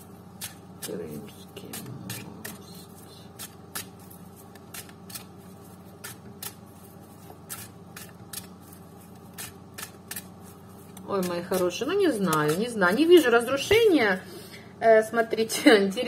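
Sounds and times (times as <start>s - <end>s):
faint room hum: 0.0s - 16.0s
cards being shuffled: 1.1s - 12.6s.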